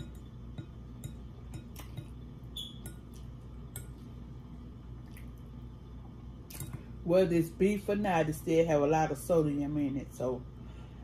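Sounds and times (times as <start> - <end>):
fork scraping glass bowl: 0.0 - 3.2
steady low hum: 0.0 - 11.0.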